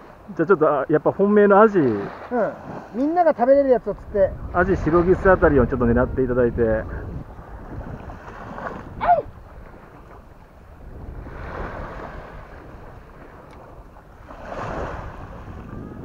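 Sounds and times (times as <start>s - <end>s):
small waves washing up beach: 0.0s - 6.2s, 6.8s - 16.0s
wind rumbling on microphone: 2.0s - 16.0s
short falling cry: 9.0s - 9.3s.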